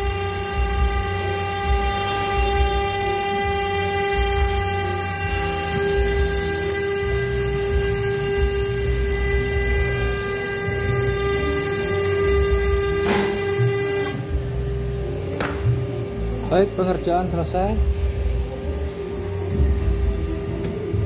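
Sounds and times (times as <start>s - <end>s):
router spindle whining: 0.0s - 21.0s.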